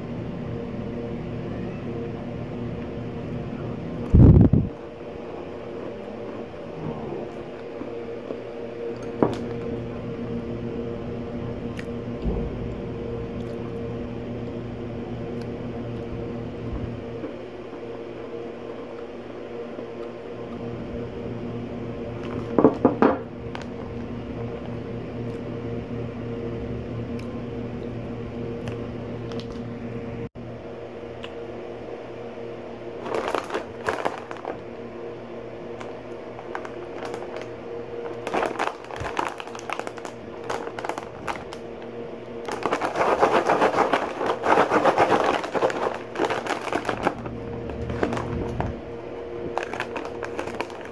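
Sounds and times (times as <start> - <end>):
steady mechanical hum: 0.0 - 50.9
plastic bag crinkling: 33.0 - 34.7, 35.7 - 41.8, 42.4 - 50.9.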